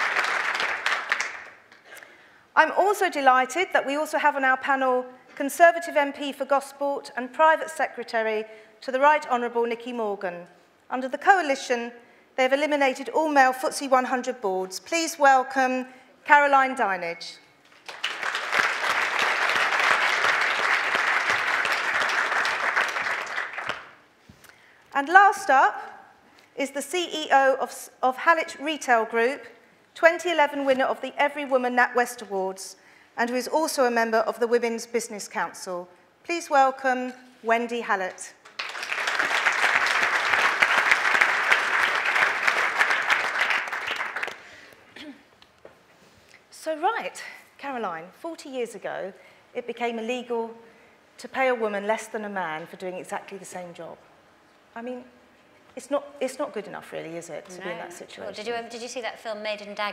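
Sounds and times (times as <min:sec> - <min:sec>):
audience applauding: 0:00.0 - 0:01.8, 0:17.8 - 0:24.0, 0:38.5 - 0:44.7.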